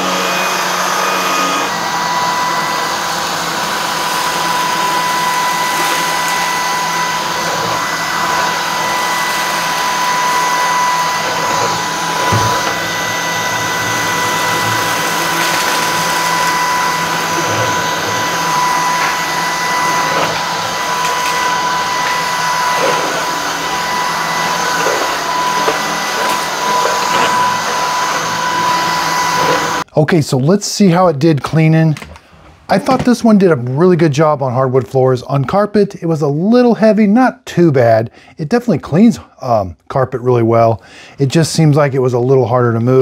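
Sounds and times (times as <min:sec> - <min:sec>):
vacuum cleaner motor whine: 0:00.0 - 0:29.9.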